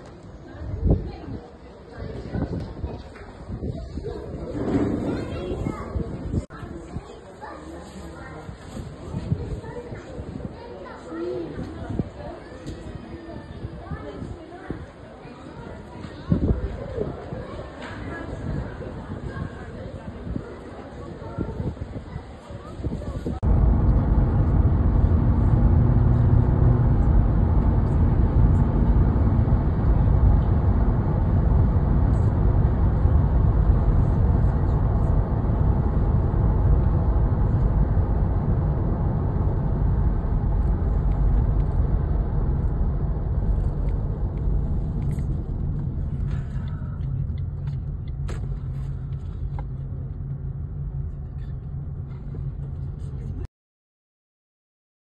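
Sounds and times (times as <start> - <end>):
car tyre and engine rumble: 23.1 - 53.4.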